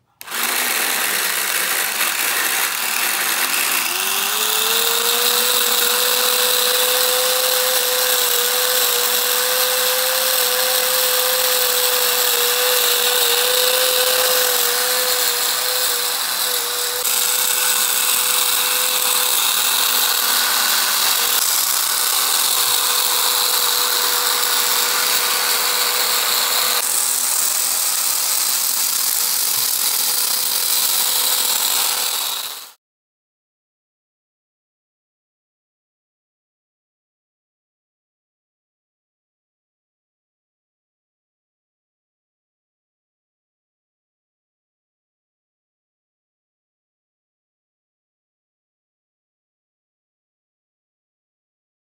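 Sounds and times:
small electric motor whining: 0:00.2 - 0:32.8.

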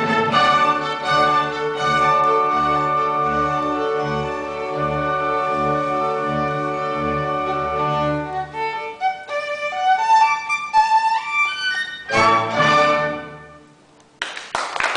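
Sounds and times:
small orchestra playing chords: 0:00.0 - 0:13.9.

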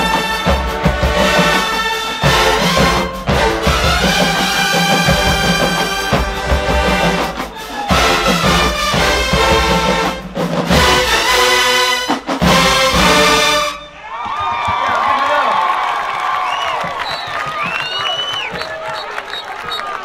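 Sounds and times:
marching band playing: 0:00.0 - 0:14.2.

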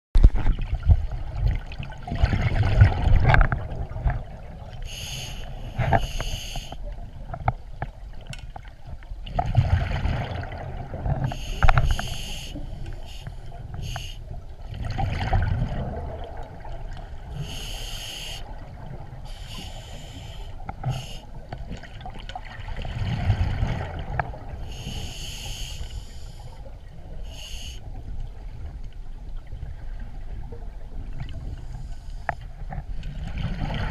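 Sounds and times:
exhaled bubbles rumbling: 0:00.2 - 0:05.0, 0:06.8 - 0:17.8, 0:20.7 - 0:24.8, 0:32.6 - 0:33.9
hissing regulator inhalations: 0:04.9 - 0:06.8, 0:11.3 - 0:14.2, 0:17.4 - 0:18.5, 0:19.3 - 0:21.3, 0:24.7 - 0:26.6, 0:27.2 - 0:27.8.

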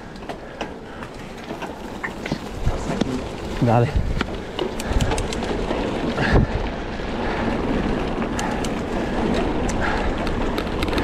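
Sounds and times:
bike rattling clicks and knocks: 0:00.0 - 0:11.0
wind noise on microphone: 0:02.2 - 0:11.0.

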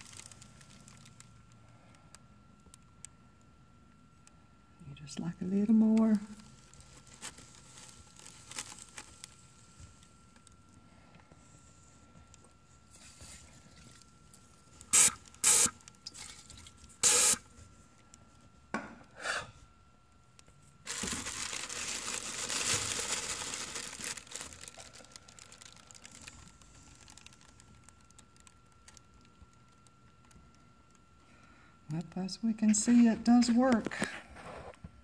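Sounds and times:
aerosol can hissing: 0:14.9 - 0:15.8, 0:17.0 - 0:17.4.

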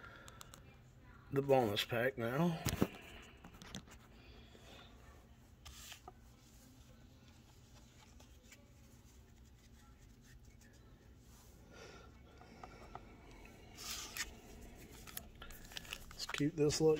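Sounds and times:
trading cards rustling and clicking: 0:12.4 - 0:16.9.

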